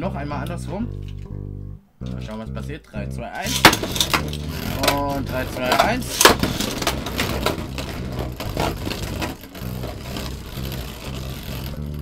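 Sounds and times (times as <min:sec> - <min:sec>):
spinning tops clacking: 0:03.4 - 0:11.4
spinning tops whirring on plastic: 0:03.5 - 0:12.0.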